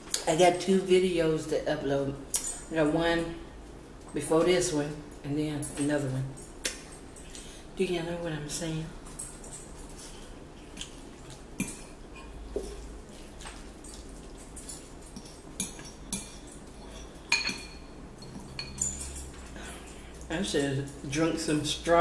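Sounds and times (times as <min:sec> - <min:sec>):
fork clinking against ceramic bowl: 0:11.6 - 0:12.8, 0:13.4 - 0:19.3.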